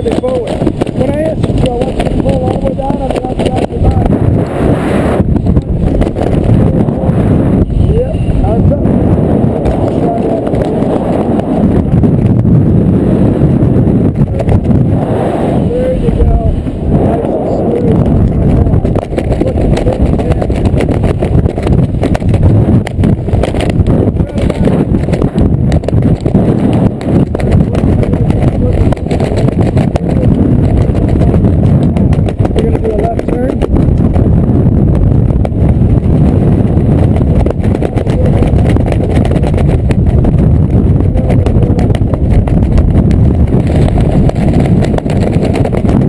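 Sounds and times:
crackles and flapping: 0.0 - 46.0
wind buffeting microphone: 0.0 - 46.0.

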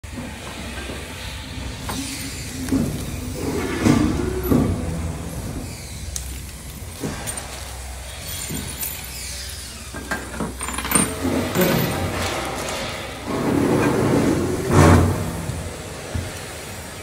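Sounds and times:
small metal parts clicking: 6.1 - 12.8.

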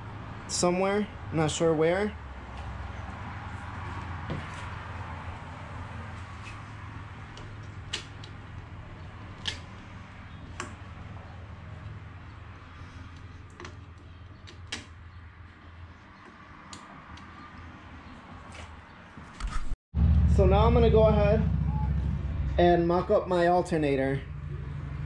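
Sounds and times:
clicks and taps of hose and pipe: 13.0 - 15.6
steady low hum: 20.0 - 25.0.

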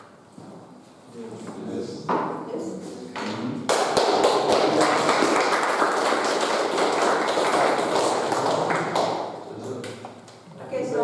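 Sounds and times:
group of people applauding: 3.7 - 10.1.

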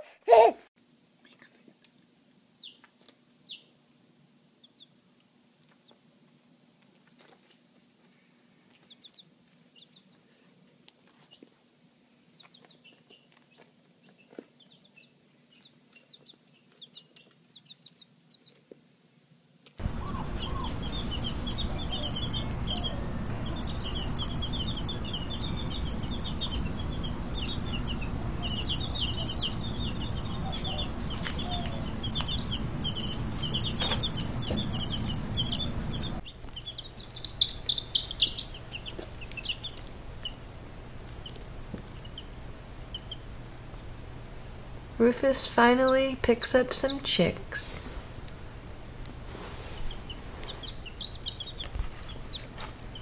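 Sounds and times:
baby chicks peeping: 2.6 - 3.8, 4.6 - 5.0, 8.6 - 11.6, 12.3 - 18.7, 19.8 - 53.0
steady low rumble: 19.8 - 45.0.

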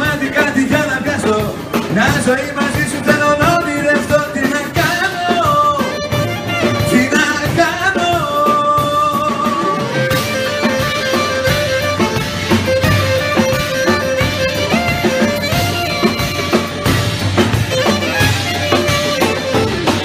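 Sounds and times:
steady drum beat: 0.0 - 20.0
strummed strings: 0.0 - 20.0
lead melody of held notes: 9.9 - 20.0.

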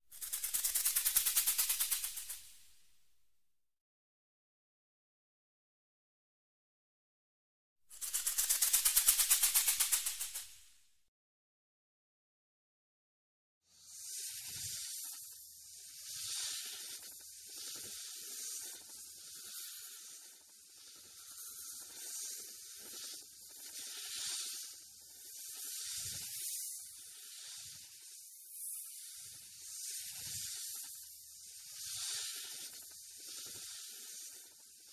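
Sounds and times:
snake hissing: 31.5 - 34.9.

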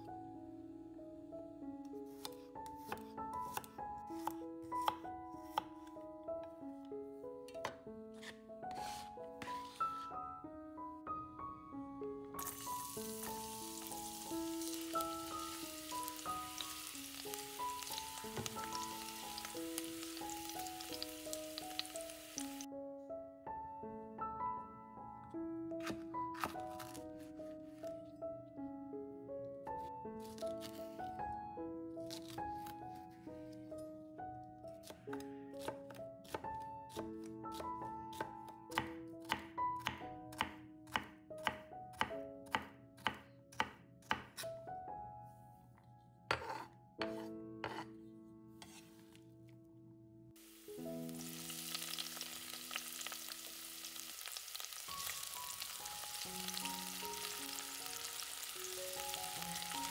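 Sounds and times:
gentle melodic music: 0.0 - 59.9
knife chopping on cutting board: 2.2 - 5.7, 25.8 - 27.0, 34.8 - 44.5, 46.3 - 47.9, 48.6 - 48.9
food frying with crackling sizzle: 12.4 - 22.7, 50.4 - 59.9.

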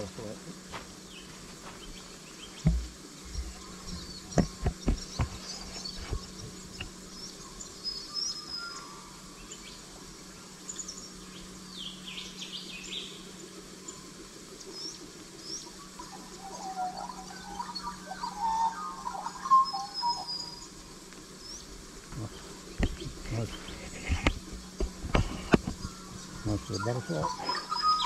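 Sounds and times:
insect buzz: 0.0 - 28.0
footsteps on stony ground: 0.6 - 7.0, 22.8 - 26.5.

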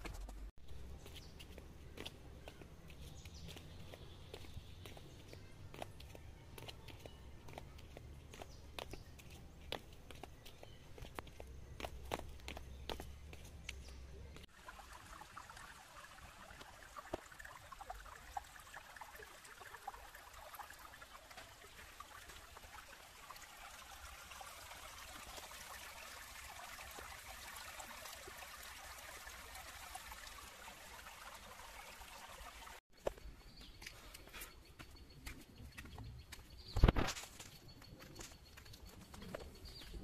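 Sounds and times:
footsteps on wet stone steps: 0.1 - 14.5, 33.0 - 40.0
stream trickling over rocks: 0.9 - 32.8.

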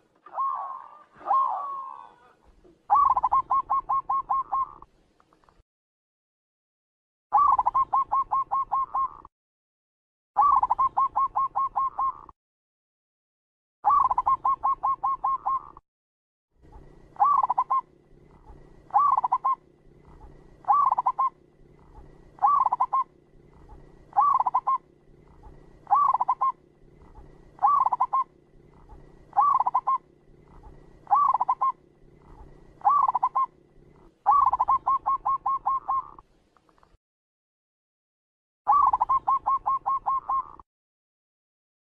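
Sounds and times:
dove cooing: 0.0 - 4.9, 7.3 - 9.3, 10.4 - 12.3, 13.8 - 15.8, 16.6 - 36.2, 38.7 - 40.6.

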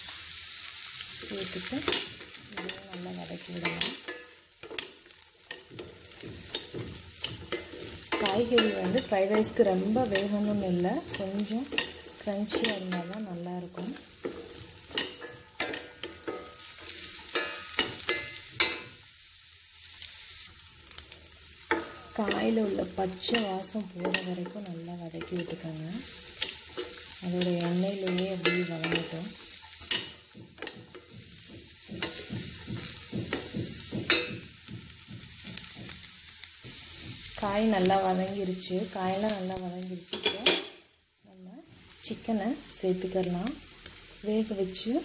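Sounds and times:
high sizzle: 0.0 - 45.0
utensil scraping pan: 1.5 - 19.0
spatula scraping and knocking pan: 1.6 - 19.1, 20.0 - 40.8.

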